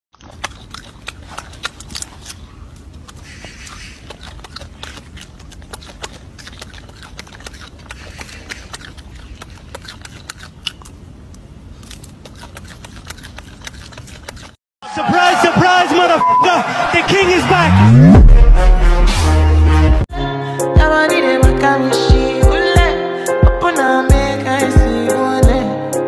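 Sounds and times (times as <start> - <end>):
monkey peeling fruit clicks: 0.2 - 14.6
steady low rumble: 17.5 - 20.1.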